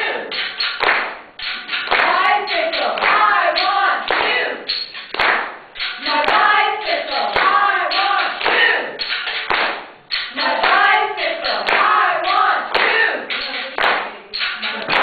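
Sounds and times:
group of voices singing: 0.0 - 0.3, 1.8 - 4.7, 6.0 - 9.1, 10.3 - 15.0
sharp claps: 0.0 - 15.0.

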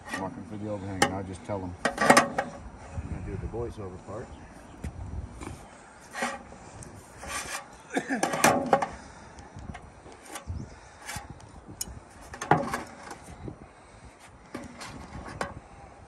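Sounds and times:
scraping on metal roof trim: 0.0 - 0.4, 6.0 - 9.0.

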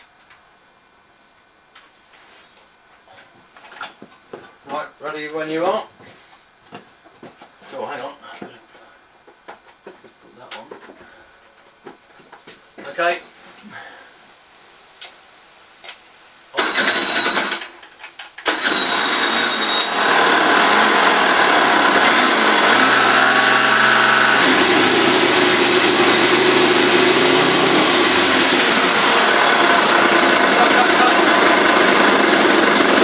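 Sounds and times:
small starter engine running: 16.6 - 17.7, 18.4 - 33.0.

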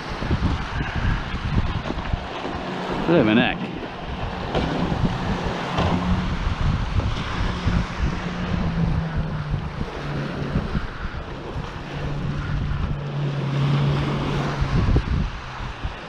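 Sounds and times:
outboard engines droning: 0.0 - 16.0
surf washing on shingle: 0.0 - 16.0
wind buffeting microphone: 0.0 - 16.0.

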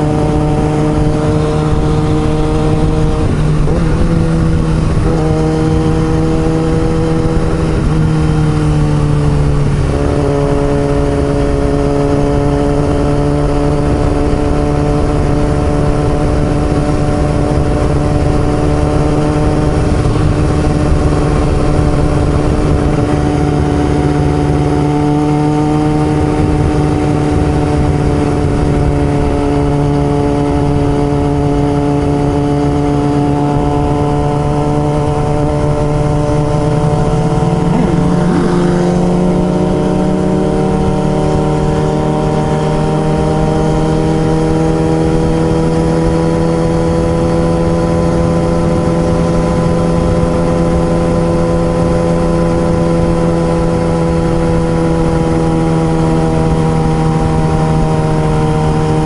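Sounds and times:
motorcycle engine running: 0.0 - 59.0
low rumble: 34.7 - 41.1.

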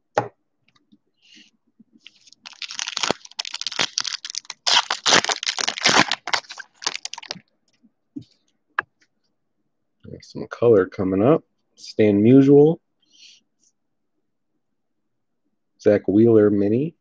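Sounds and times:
foil wrapper crinkling and tearing: 2.0 - 7.4.

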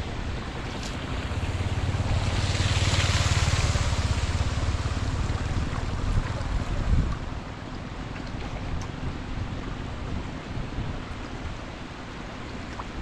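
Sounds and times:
wind buffeting microphone: 0.0 - 11.8
shallow water splashing: 0.6 - 7.2.

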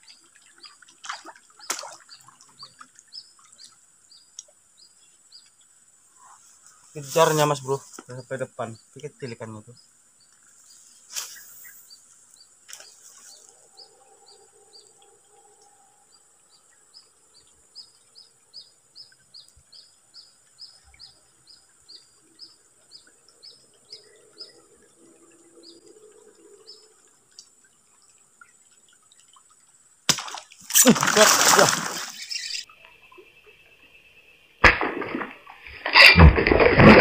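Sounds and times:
high insect drone: 3.6 - 28.9
small bird chirping: 32.1 - 34.4.

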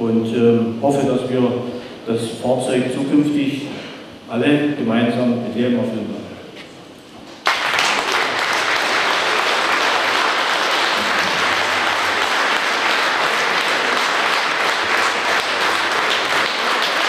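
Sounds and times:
audience applauding: 7.4 - 17.0.

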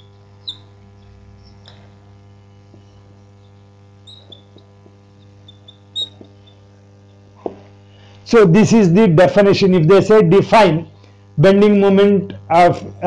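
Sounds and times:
marker squeaking on whiteboard: 0.0 - 2.0, 2.7 - 7.6
steady electrical hum: 0.0 - 13.0.

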